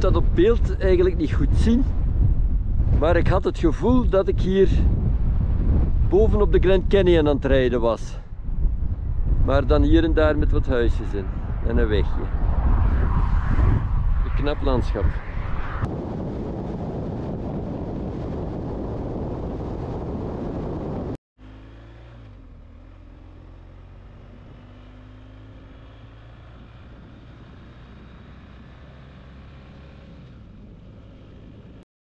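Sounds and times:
wind rushing over microphone: 0.0 - 21.2, 24.0 - 31.8
engine and road hum: 0.0 - 31.8.

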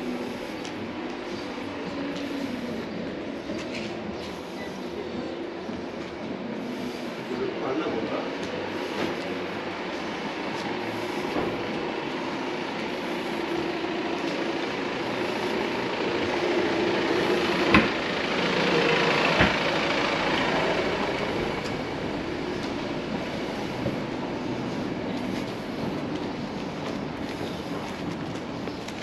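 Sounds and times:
car driving over cobblestones: 7.9 - 29.0.

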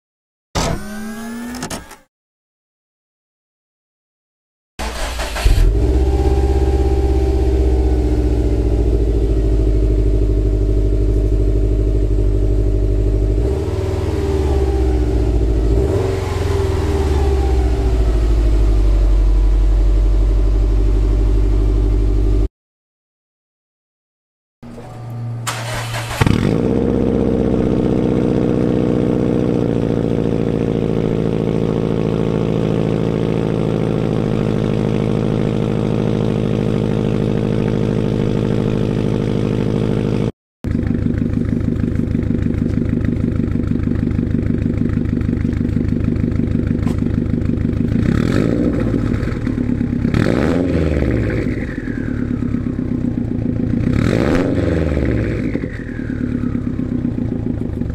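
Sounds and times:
car engine revving: 4.8 - 22.5, 25.4 - 40.3, 46.5 - 52.8, 53.8 - 57.6
car engine idling: 4.9 - 16.0, 25.0 - 40.0, 40.7 - 48.1, 55.9 - 57.9.

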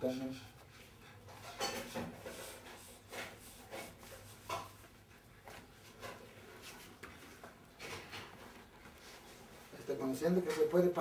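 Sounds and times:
clothing rustling on floor mat: 8.3 - 10.8.

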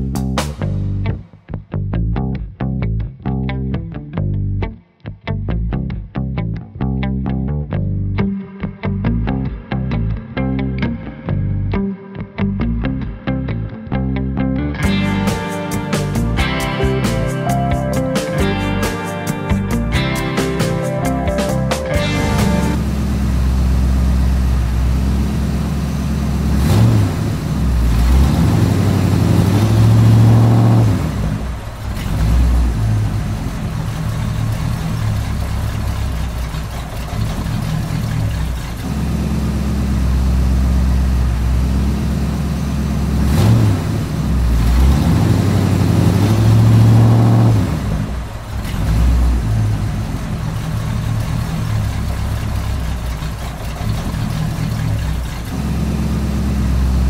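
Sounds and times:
diesel engine idling and revving: 14.8 - 57.0.

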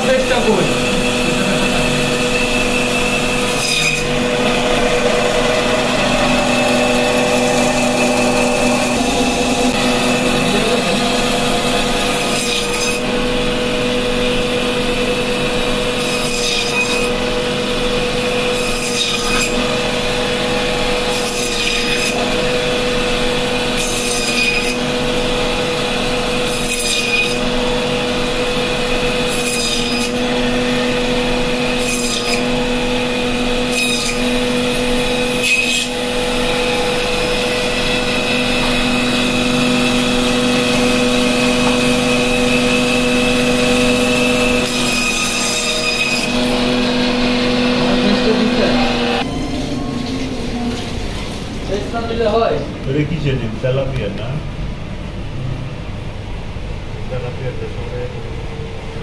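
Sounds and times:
saw blade rasping through fish: 0.0 - 13.3, 15.8 - 17.2, 18.4 - 19.8, 23.6 - 24.9, 26.3 - 27.9, 28.8 - 49.2
band saw motor hum: 0.0 - 59.0.

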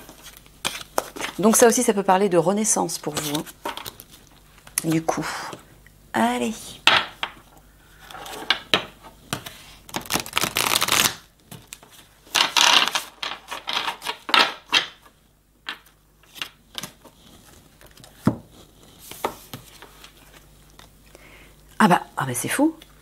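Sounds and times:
cards shuffled by hand: 9.3 - 15.1.

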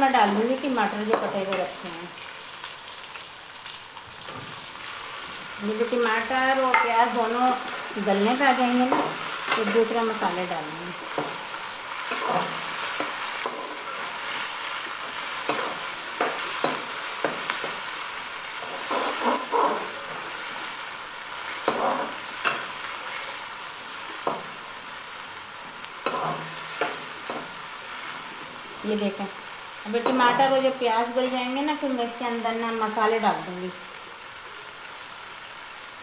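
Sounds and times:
onions sizzling in hot oil: 0.0 - 36.0
metal spatula scraping pan: 18.6 - 20.5.

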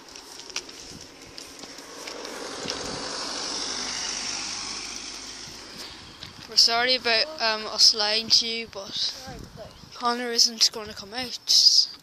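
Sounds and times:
car passing: 0.0 - 8.3.

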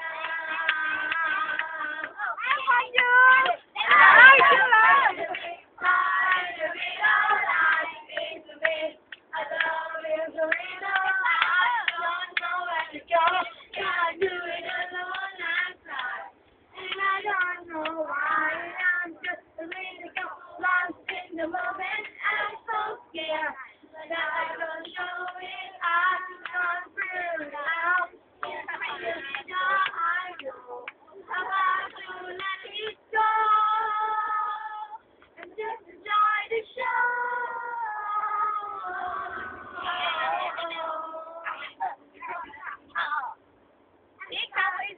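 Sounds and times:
children singing together: 0.0 - 2.4, 31.3 - 35.0, 35.6 - 42.4.

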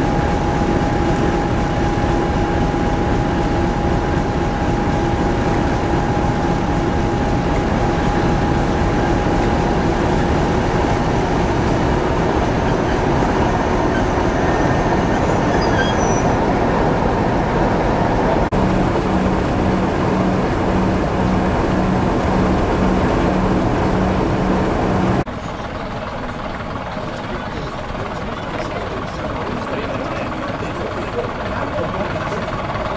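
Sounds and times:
diesel locomotive rumbling: 0.0 - 32.9
low pulsing throb: 16.3 - 25.3.

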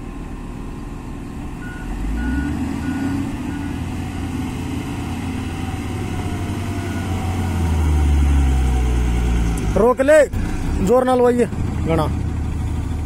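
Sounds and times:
diesel truck engine under load: 0.0 - 13.0
reversing alarm beeps: 1.6 - 3.8.

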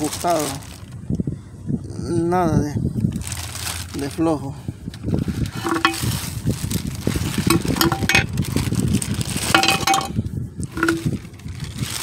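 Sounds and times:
plastic bag crinkling: 0.0 - 0.9, 3.1 - 4.2, 5.0 - 12.0.

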